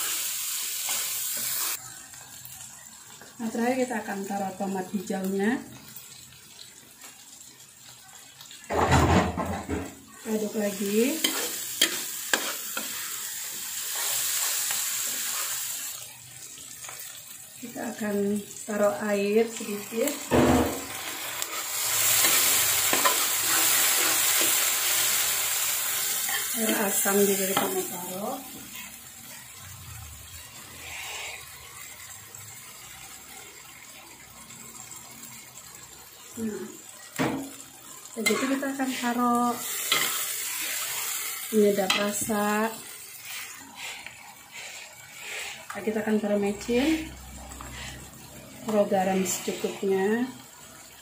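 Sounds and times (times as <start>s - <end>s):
vegetables sizzling in oil: 0.0s - 51.0s
metal spatula stirring: 10.4s - 15.6s, 21.0s - 24.8s, 38.2s - 39.1s, 39.7s - 41.0s, 43.2s - 45.9s.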